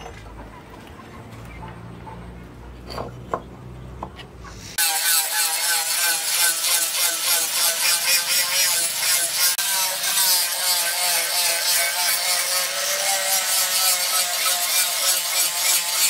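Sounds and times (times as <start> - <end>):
angle grinder grinding metal: 4.6 - 16.0.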